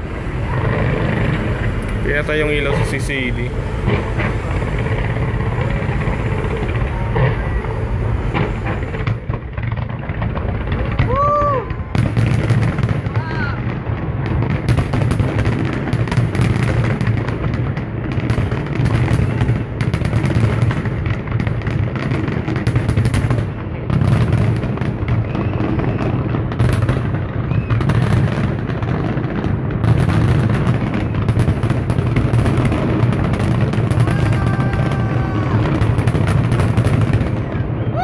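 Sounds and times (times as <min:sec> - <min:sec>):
heavy low rumble: 0:00.0 - 0:19.8
fireworks crackle: 0:00.0 - 0:38.0.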